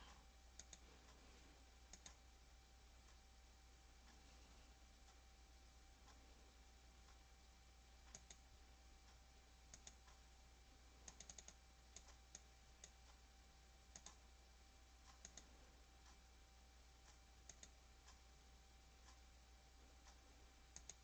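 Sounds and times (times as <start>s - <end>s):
computer mouse clicks: 0.0s - 0.9s, 1.9s - 2.2s, 8.0s - 8.4s, 9.1s - 10.2s, 11.0s - 13.2s, 13.9s - 14.2s, 15.0s - 16.2s, 17.0s - 18.2s, 20.0s - 21.0s
steady low hum: 0.0s - 21.0s.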